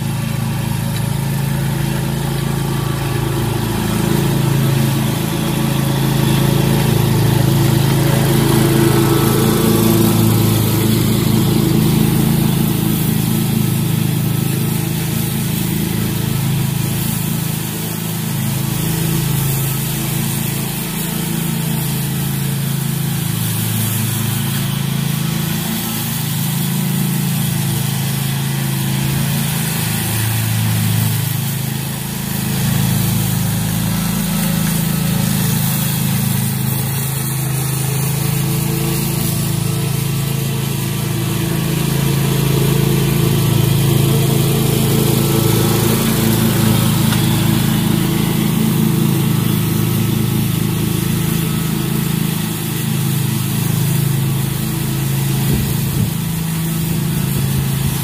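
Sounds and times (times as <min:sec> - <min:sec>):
lawn mower engine cutting grass: 0:00.0 - 0:58.0.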